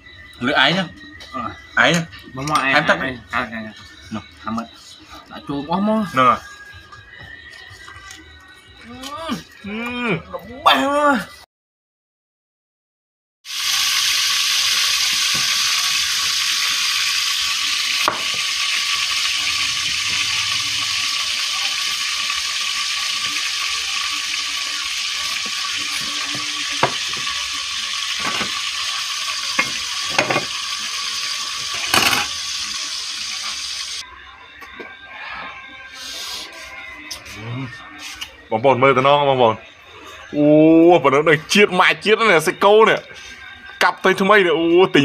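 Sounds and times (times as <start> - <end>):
loud sizzling hiss: 13.5 - 34.0.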